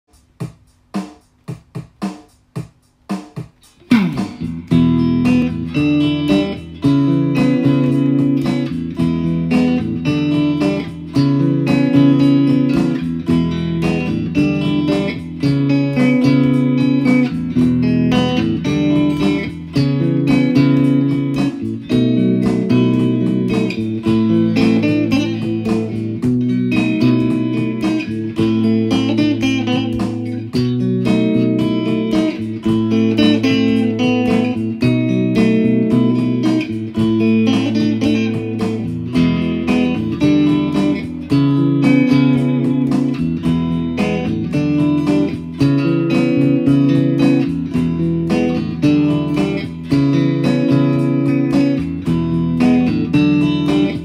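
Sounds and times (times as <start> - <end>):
instrumental guitar music: 0.1 - 54.0
low bass line: 3.8 - 6.2.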